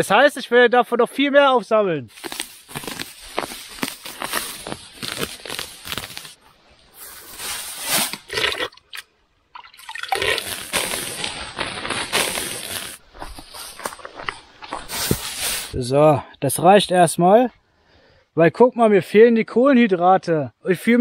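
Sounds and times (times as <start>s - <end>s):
dry grass rustling and tearing: 2.1s - 6.4s, 7.0s - 8.6s, 10.1s - 15.7s.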